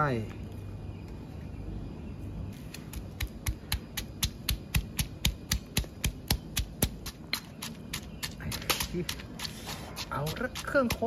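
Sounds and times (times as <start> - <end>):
stone pestle pounding in mortar: 2.9 - 11.0.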